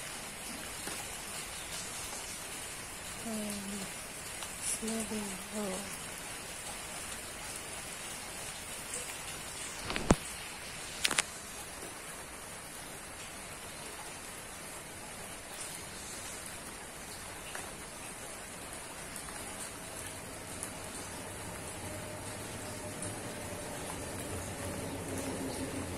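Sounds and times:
steady rain falling: 0:00.0 - 0:25.9.

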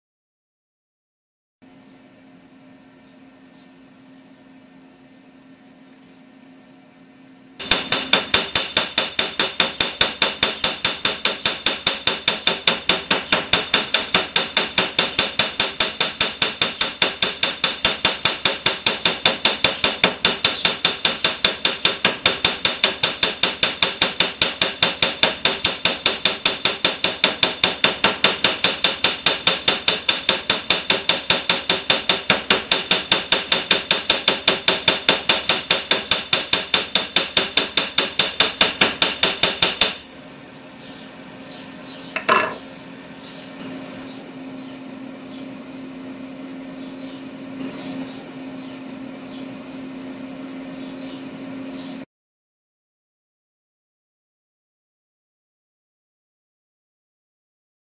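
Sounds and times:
hammer beating metal strip: 0:07.6 - 0:40.0.

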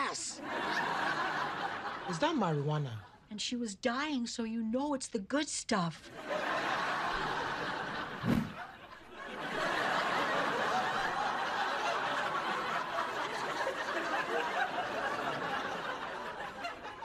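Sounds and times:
studio audience laughter: 0:00.4 - 0:02.6, 0:06.1 - 0:17.0
short low thud: 0:08.2 - 0:08.6.

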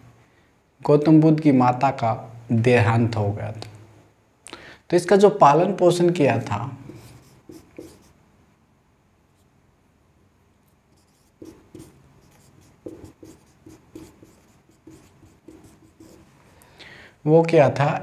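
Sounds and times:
marker pen writing on whiteboard: 0:06.8 - 0:08.2, 0:10.9 - 0:16.3.

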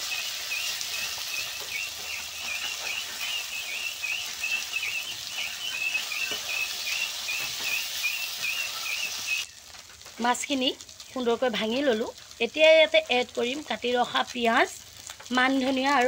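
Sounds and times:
fish sizzling in hot oil: 0:00.0 - 0:16.0
high wavering chirp: 0:00.1 - 0:09.5.

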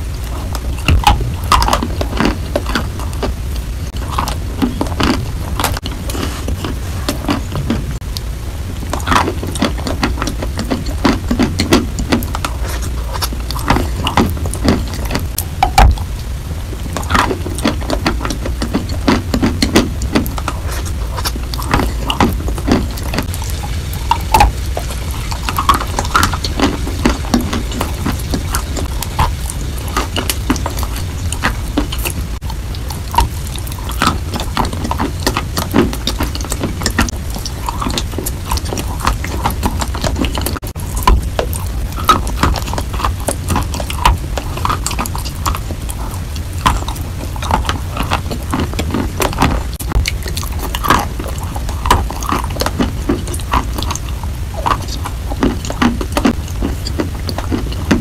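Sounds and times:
low hum: 0:00.0 - 0:58.0
wet chewing and mouth clicks: 0:00.0 - 0:58.0.

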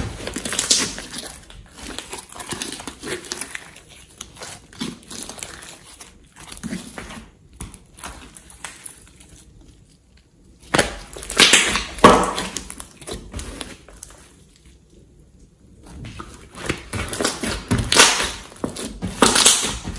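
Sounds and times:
slime squishing and crackling: 0:00.0 - 0:19.9.

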